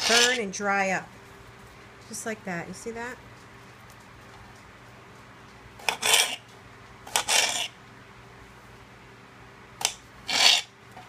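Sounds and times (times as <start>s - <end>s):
knife cutting banana: 0.0s - 0.4s, 5.8s - 6.4s, 7.1s - 7.8s, 9.8s - 10.7s.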